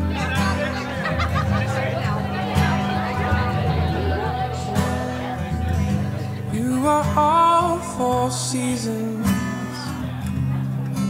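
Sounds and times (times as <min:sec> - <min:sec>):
soft accompaniment: 0:00.0 - 0:09.4
person singing love song: 0:02.2 - 0:10.0.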